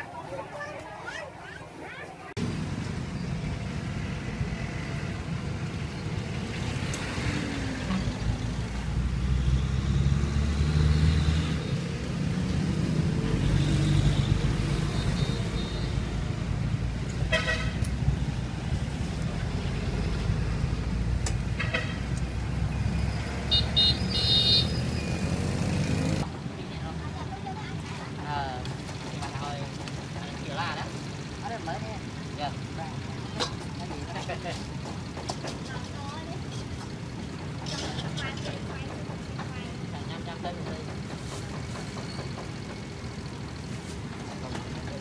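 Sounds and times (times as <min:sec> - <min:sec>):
traffic engines rumbling: 0:00.0 - 0:45.0
vehicle horn beeps: 0:17.3 - 0:17.8, 0:23.5 - 0:25.2.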